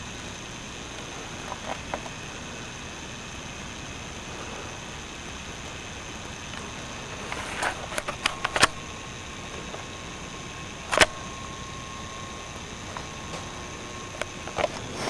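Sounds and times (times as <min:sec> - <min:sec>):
camera handling noise: 0:10.9 - 0:11.2.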